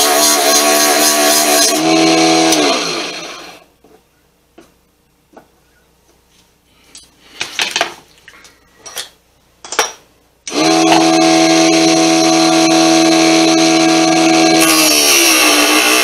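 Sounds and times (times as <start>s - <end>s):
lathe motor whining: 10.5s - 16.0s.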